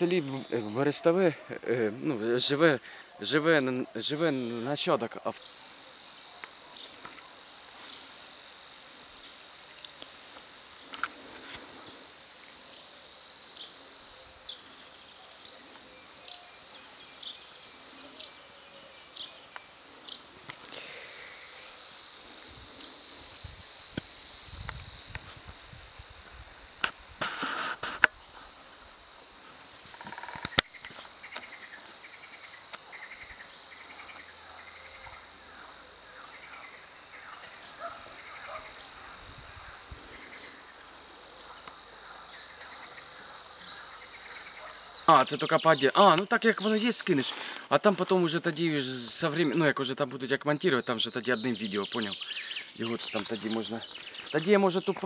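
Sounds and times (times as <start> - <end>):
high-pitched insect trill: 0.0 - 55.0
loud rustle: 26.8 - 28.7
bird chirps and calls: 42.4 - 47.5, 50.8 - 55.0.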